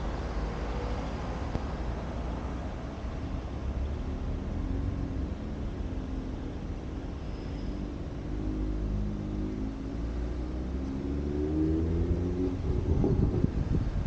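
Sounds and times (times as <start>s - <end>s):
car engine accelerating: 8.3s - 13.7s.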